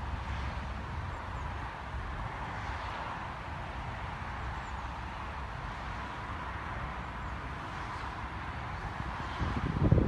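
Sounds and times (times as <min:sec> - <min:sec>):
wind buffeting microphone: 0:08.0 - 0:10.0.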